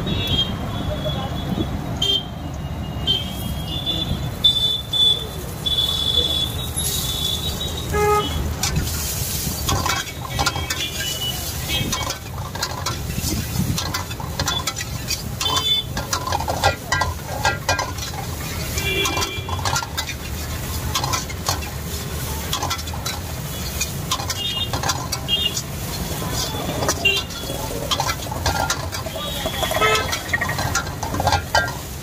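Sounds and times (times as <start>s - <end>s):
spatula scraping metal wok: 8.4s - 32.0s.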